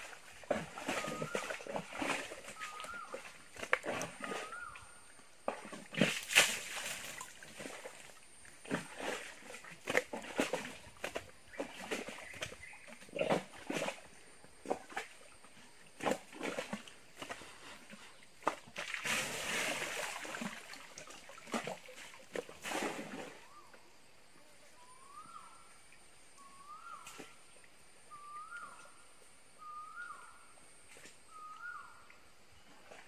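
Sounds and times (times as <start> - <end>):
elephant splashing mud and water: 0.0 - 23.6
bird calling: 2.5 - 3.3, 4.2 - 5.1, 24.8 - 25.7, 26.4 - 27.4, 28.1 - 29.0, 29.6 - 30.5, 31.3 - 32.1.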